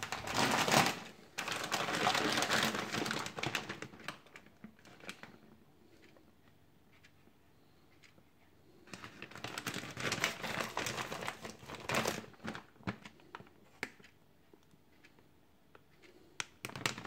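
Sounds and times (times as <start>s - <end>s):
plastic bag crinkling: 0.0s - 5.4s, 8.9s - 13.5s.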